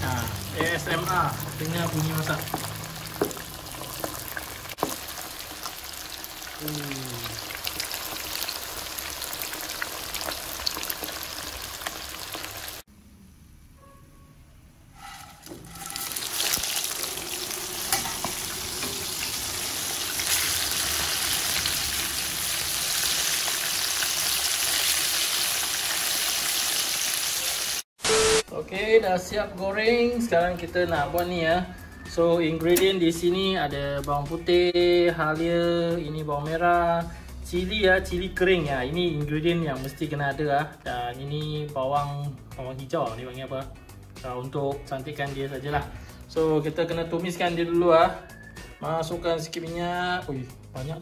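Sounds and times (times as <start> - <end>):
fish deep-frying in oil: 0.0 - 12.8, 15.7 - 28.4.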